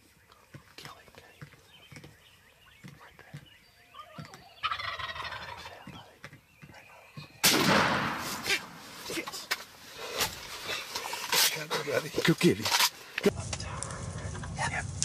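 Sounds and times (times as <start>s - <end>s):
turkey gobbling: 4.0s - 5.8s
gunshot echoing: 7.4s - 9.0s.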